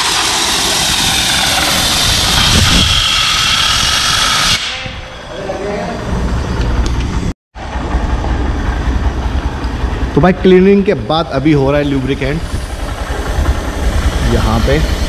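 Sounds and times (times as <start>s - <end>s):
air blow gun hissing: 0.0s - 4.8s
low rumble: 4.9s - 15.0s.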